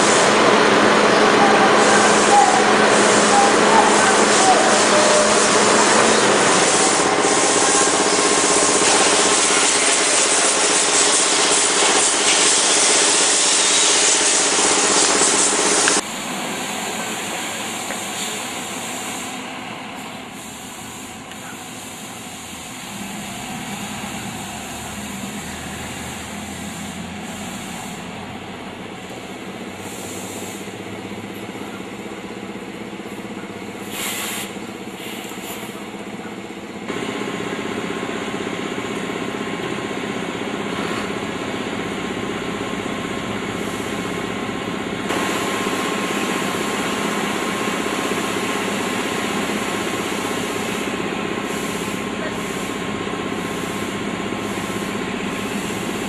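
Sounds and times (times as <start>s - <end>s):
diesel engine running: 0.0s - 56.0s
strong steady hiss: 1.1s - 28.2s, 33.7s - 35.9s
short hisses: 29.8s - 30.7s, 33.8s - 35.8s.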